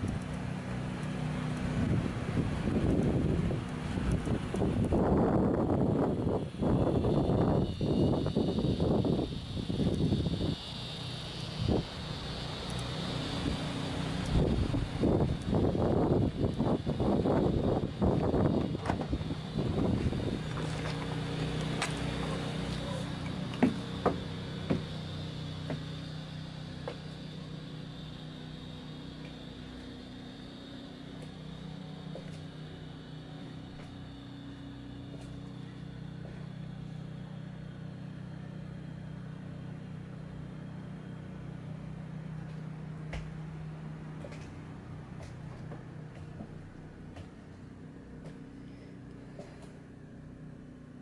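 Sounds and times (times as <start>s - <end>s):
low mechanical hum: 0.0s - 51.0s
footstep onto bus: 18.2s - 19.3s, 23.5s - 24.9s, 25.6s - 25.9s, 42.5s - 43.4s, 44.2s - 44.6s, 45.2s - 47.6s.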